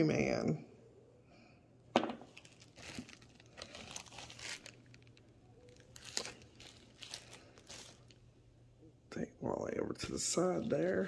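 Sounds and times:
plastic bag crinkling: 0:02.2 - 0:08.3.

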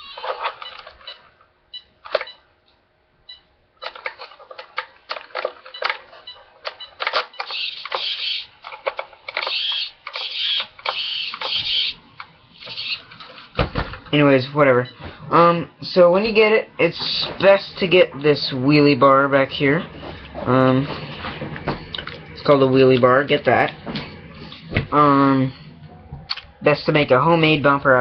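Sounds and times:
rc truck motor stuttering: 0:07.3 - 0:12.0, 0:12.6 - 0:13.1.

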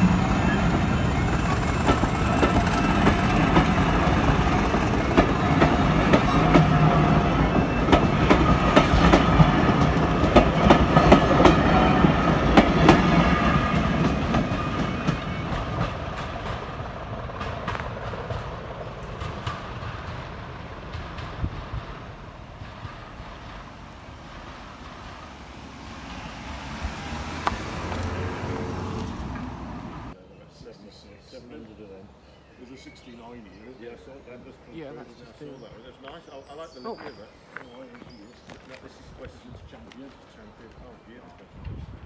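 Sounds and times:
train wheels clicking over rail joints: 0:00.0 - 0:25.4.

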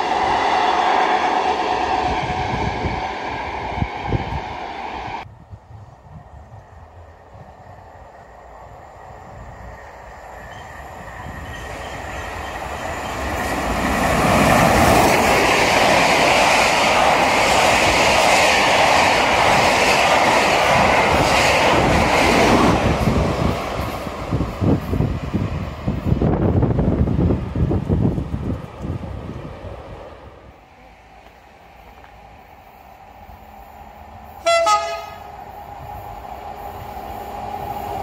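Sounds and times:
wind on microphone: 0:01.5 - 0:08.1, 0:13.2 - 0:30.5
train wheels on rails: 0:06.1 - 0:38.0.

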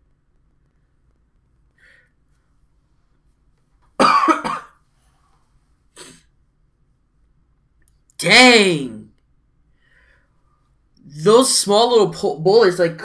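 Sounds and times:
man coughing: 0:04.0 - 0:04.8.

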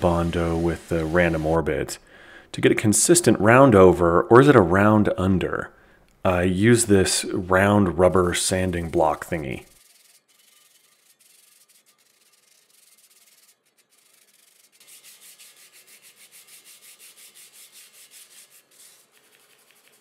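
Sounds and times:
sandpaper rubbing on filler: 0:00.0 - 0:01.7, 0:08.0 - 0:20.0.

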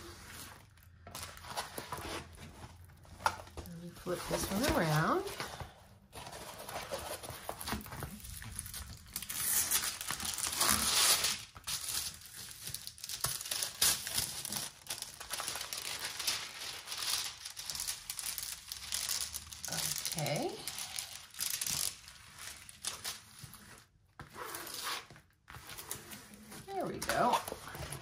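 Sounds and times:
plastic film crinkling: 0:06.2 - 0:28.0.

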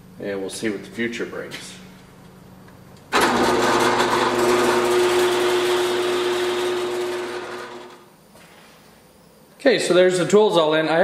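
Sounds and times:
drill press motor hum: 0:03.1 - 0:08.1.

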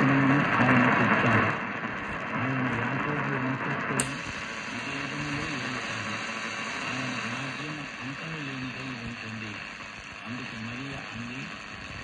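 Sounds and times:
radio static hiss: 0:00.0 - 0:12.0
voice on radio: 0:00.0 - 0:12.0
radio knob click: 0:04.0 - 0:04.4.

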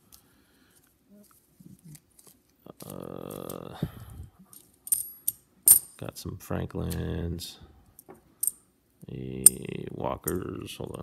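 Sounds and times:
man's low vocal sound: 0:02.8 - 0:04.4
coins clinking: 0:04.5 - 0:06.0.

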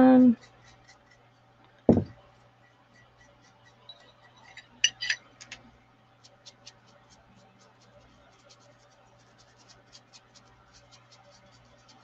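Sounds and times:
fan humming: 0:00.0 - 0:12.0
thump on tabletop: 0:01.9 - 0:02.2.

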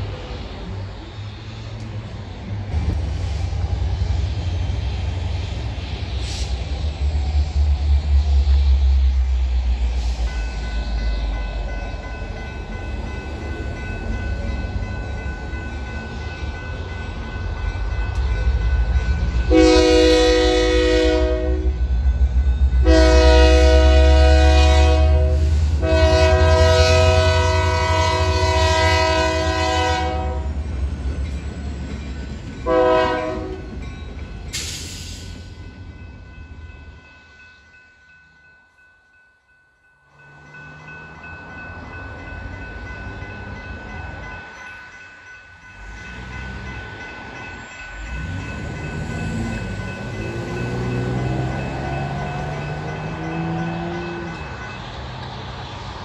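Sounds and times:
diesel locomotive engine rumbling: 0:00.0 - 0:56.0
crossing warning bells ringing: 0:07.5 - 0:56.0
train horn blasts: 0:19.5 - 0:21.9, 0:22.8 - 0:30.6, 0:32.6 - 0:33.7.

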